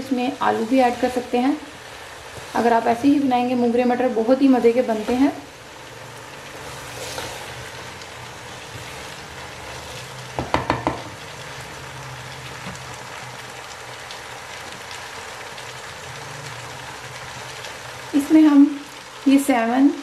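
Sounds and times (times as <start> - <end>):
vegetables sizzling in oil: 0.0 - 20.0
spatula knocking on pot: 10.4 - 11.2.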